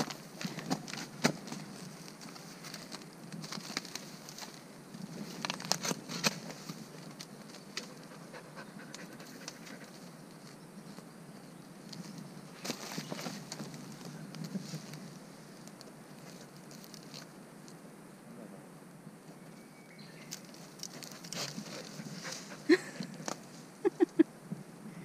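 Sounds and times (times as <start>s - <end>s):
leaf litter rustling: 0.0s - 8.0s, 11.9s - 17.3s, 20.3s - 24.2s
dog paws scratching soil: 20.3s - 24.2s.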